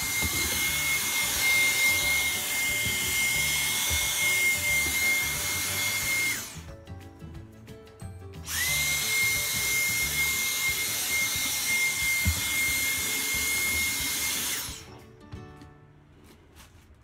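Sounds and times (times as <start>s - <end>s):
vacuum cleaner motor whine: 0.0s - 6.6s, 8.5s - 14.9s.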